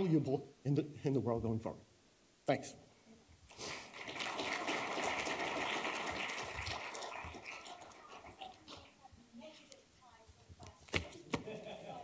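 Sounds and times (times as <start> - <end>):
audience applauding: 3.8 - 8.7.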